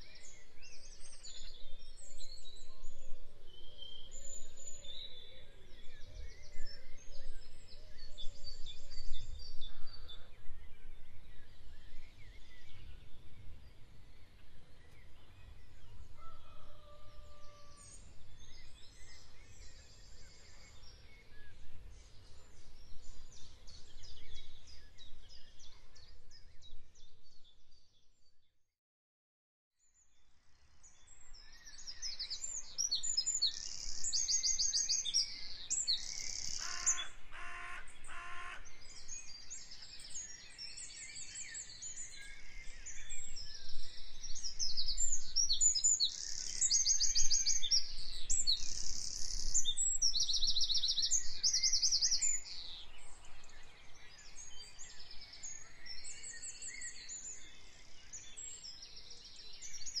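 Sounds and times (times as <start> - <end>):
bird chorus: 0.0 - 28.4, 29.8 - 60.0
lower bird call: 36.1 - 38.9.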